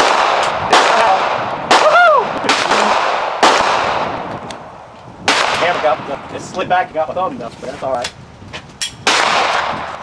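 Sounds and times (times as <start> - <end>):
pistol shots with echo: 0.0 - 4.3, 5.2 - 6.2, 9.0 - 10.0.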